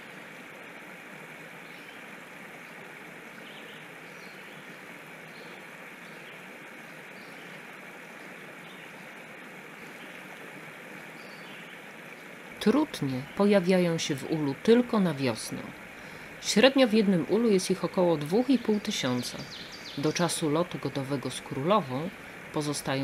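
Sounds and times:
outdoor background hiss: 0.0s - 23.0s
faint bird chirps: 18.5s - 20.2s.

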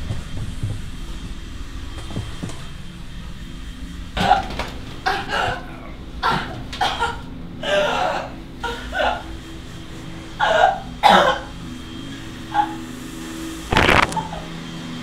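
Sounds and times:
steady low hum: 0.0s - 15.0s
person coughing and gasping: 4.2s - 9.3s, 10.4s - 11.5s.

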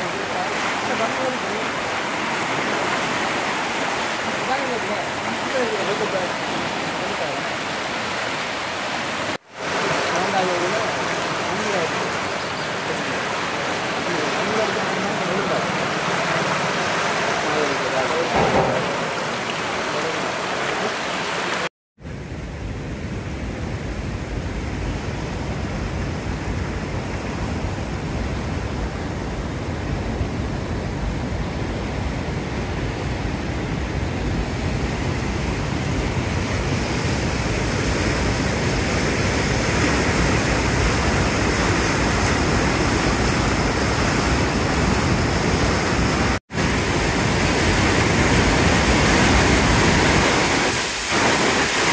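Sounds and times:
floodwater rushing: 0.0s - 22.3s, 22.9s - 51.9s.

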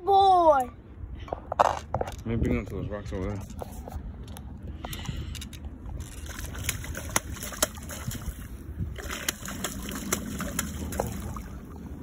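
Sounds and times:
wind rumble on microphone: 0.9s - 12.0s.

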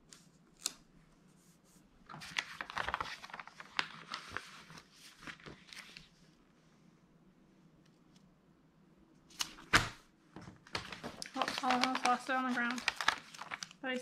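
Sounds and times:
paper rustling and crackling: 2.1s - 6.3s, 10.6s - 14.0s.

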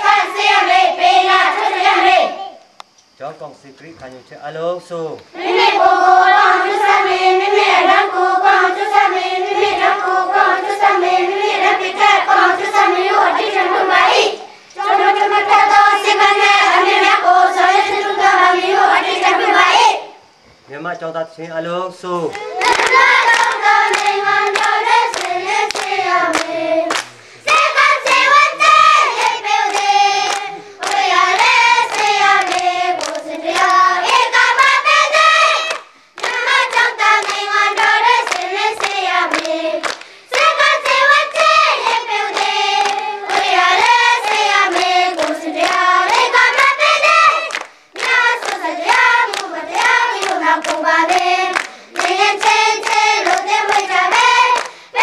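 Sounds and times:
children singing in unison: 0.0s - 2.6s, 5.3s - 20.2s, 22.4s - 55.0s
hands clapping: 22.2s - 55.0s.

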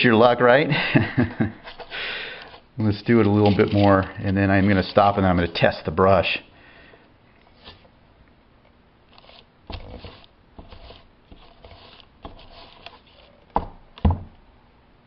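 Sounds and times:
iron scuffing on paper: 9.2s - 13.3s.

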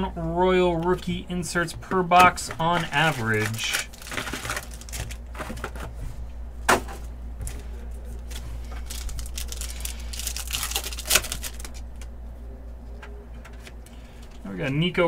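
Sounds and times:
foil wrappers crinkling: 2.1s - 5.9s, 7.4s - 12.1s.

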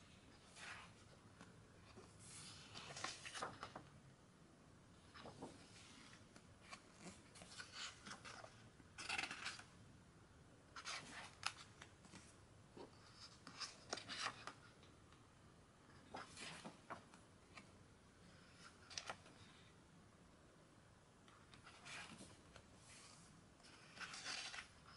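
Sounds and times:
book pages turning: 0.4s - 3.9s, 5.0s - 9.7s, 10.8s - 14.7s, 16.1s - 17.7s, 18.5s - 19.5s, 21.5s - 24.9s.

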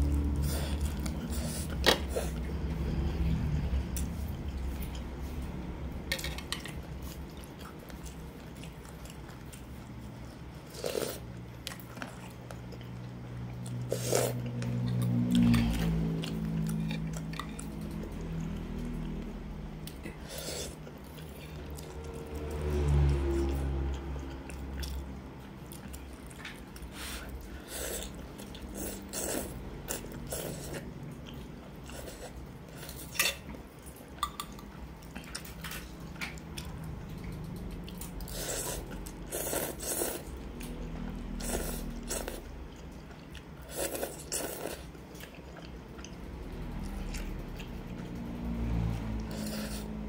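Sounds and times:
slurping noodles and broth: 0.2s - 3.1s, 10.6s - 11.3s, 13.8s - 14.5s, 20.0s - 21.4s, 26.8s - 30.8s, 38.2s - 40.5s, 41.2s - 42.5s, 43.6s - 45.0s, 49.2s - 50.0s.

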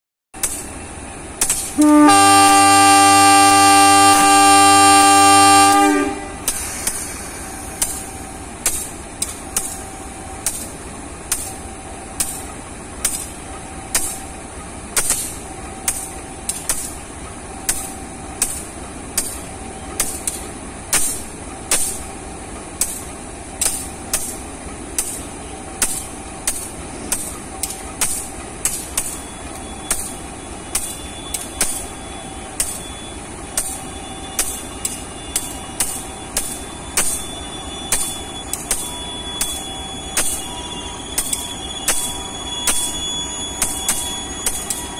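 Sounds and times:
diesel locomotive engine running: 0.4s - 44.9s
short beeps: 29.1s - 44.9s.

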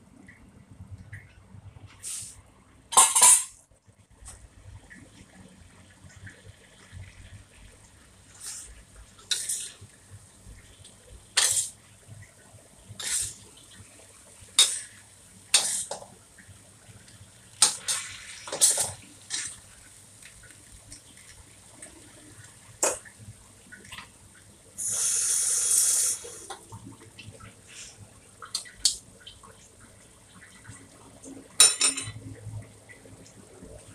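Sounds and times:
food frying hiss: 4.8s - 33.9s
spatula scraping a wok: 9.3s - 9.8s, 11.4s - 11.8s, 13.0s - 13.4s, 15.5s - 16.0s.

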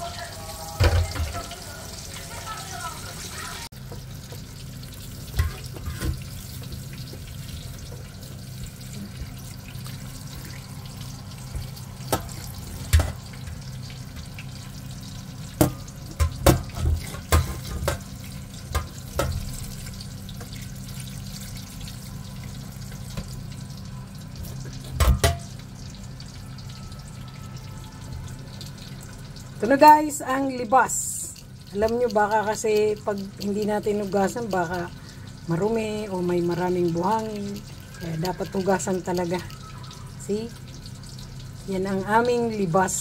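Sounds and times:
tap water running into strainer: 0.0s - 43.0s
strainer knocking against sink: 0.8s - 1.4s.

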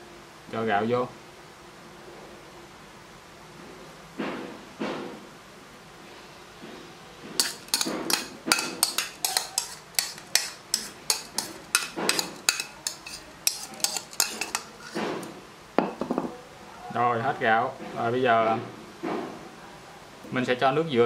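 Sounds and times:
spoon scraping a bowl: 7.4s - 15.4s.

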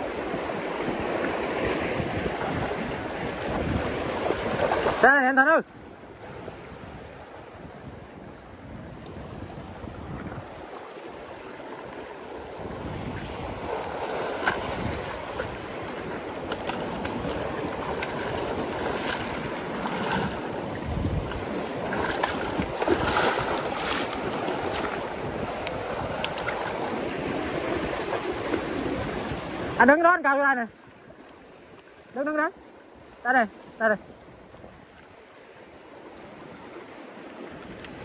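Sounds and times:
surf breaking on rocky shore: 0.0s - 30.7s
wind on microphone: 0.0s - 30.7s
waves splashing: 0.0s - 38.0s.

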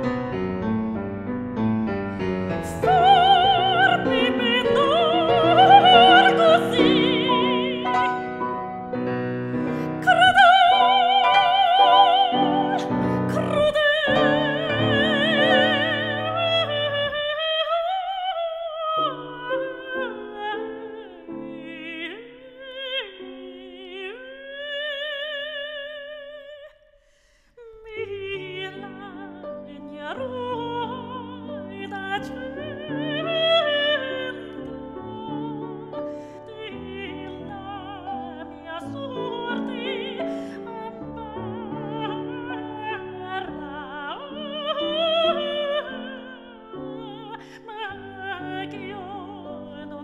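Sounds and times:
piano accompaniment: 0.0s - 24.6s, 27.9s - 50.0s
soprano singing with vibrato: 2.1s - 9.0s, 9.6s - 26.9s, 27.6s - 50.0s.

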